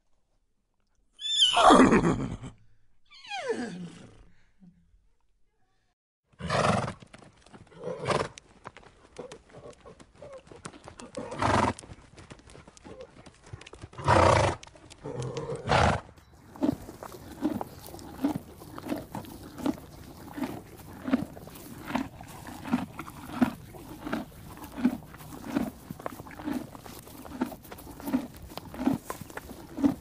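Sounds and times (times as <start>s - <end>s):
horses snorting: 9.0s - 13.2s, 13.8s - 30.0s.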